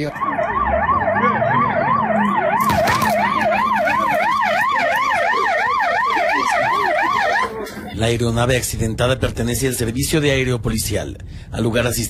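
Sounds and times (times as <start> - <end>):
siren yelping: 0.0 - 7.9.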